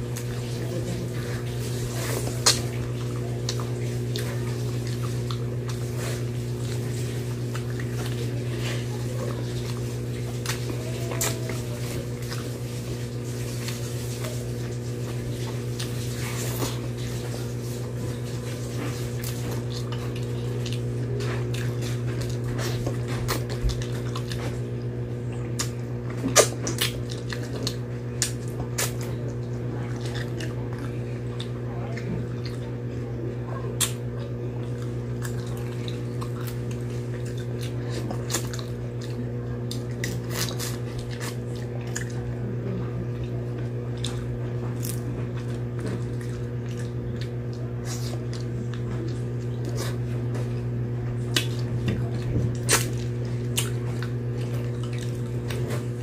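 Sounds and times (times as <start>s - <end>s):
wet chewing: 0.0s - 56.0s
lip smacks: 2.0s - 2.8s, 25.5s - 29.1s, 51.3s - 52.0s, 52.6s - 55.8s.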